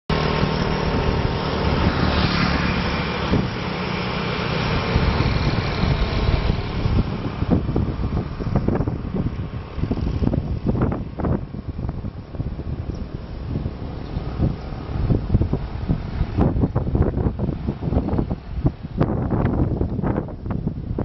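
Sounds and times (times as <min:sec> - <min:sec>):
motorbike engines passing: 0:00.1 - 0:21.0
wind buffeting microphone: 0:00.1 - 0:21.0.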